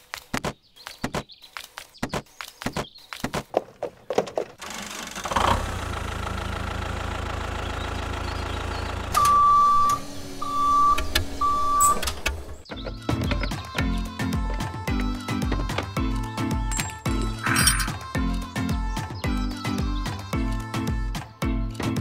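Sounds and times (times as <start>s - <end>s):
tractor engine running: 4.0s - 14.6s
horn beeps: 9.2s - 12.1s.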